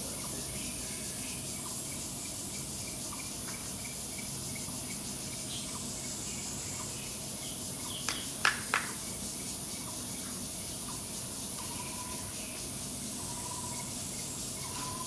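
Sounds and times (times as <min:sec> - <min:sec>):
insect chorus: 0:00.0 - 0:15.0
faint regular chirp: 0:11.6 - 0:15.0.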